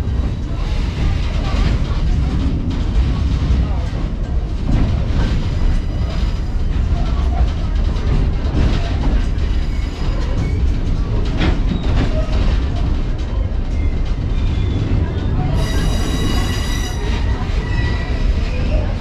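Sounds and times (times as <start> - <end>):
train rumbling on rails: 0.0 - 19.0
high wheel squeal: 15.5 - 18.4.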